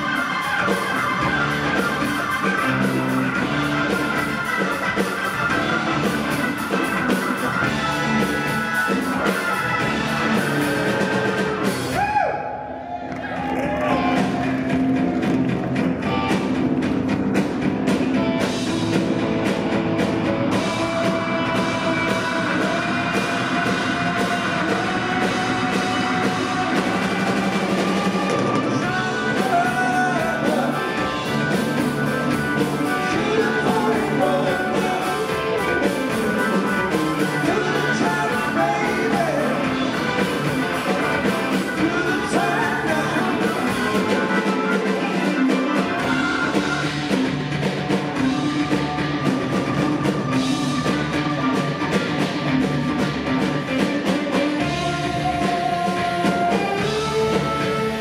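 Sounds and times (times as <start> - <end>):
rock band playing: 0.0 - 58.0
person singing: 20.4 - 47.2, 53.5 - 58.0.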